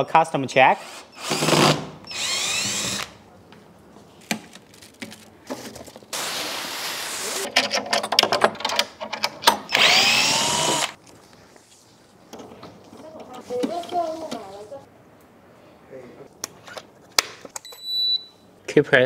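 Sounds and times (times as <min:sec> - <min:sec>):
cordless drill whining: 0:00.8 - 0:03.2, 0:09.7 - 0:11.0.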